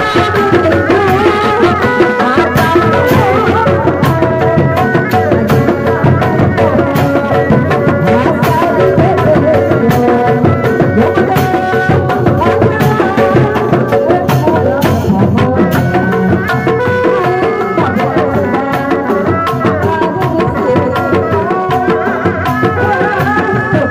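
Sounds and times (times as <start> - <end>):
bass drum: 0.0 - 23.9
hand drums playing fast rhythm: 0.0 - 23.9.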